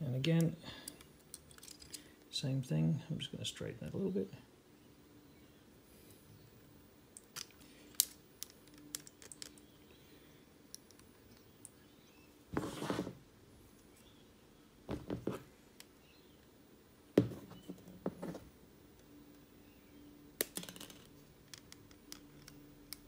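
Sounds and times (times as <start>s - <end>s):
scraping rustle: 12.5s - 13.2s.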